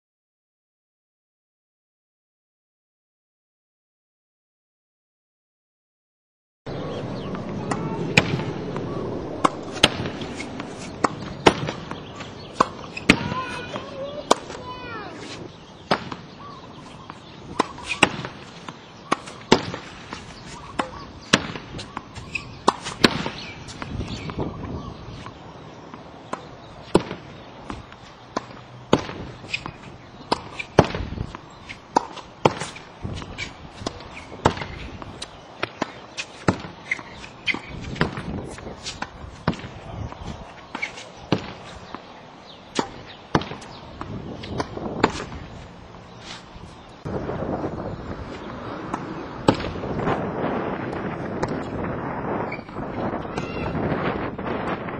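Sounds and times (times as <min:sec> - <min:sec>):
balls bouncing on hard court: 0:07.0 - 0:24.5, 0:25.2 - 0:42.1, 0:42.7 - 0:45.5, 0:48.3 - 0:50.0
tennis ball pops: 0:09.4 - 0:14.6, 0:48.9 - 0:49.8
tennis racket striking balls: 0:09.4 - 0:24.5, 0:25.2 - 0:47.0, 0:48.2 - 0:50.0.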